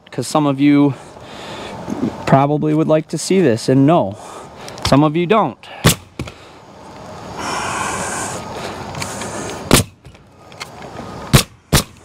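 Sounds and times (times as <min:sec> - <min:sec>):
roofing nailer firing: 0:05.8 - 0:06.3, 0:09.7 - 0:10.2, 0:11.3 - 0:12.0.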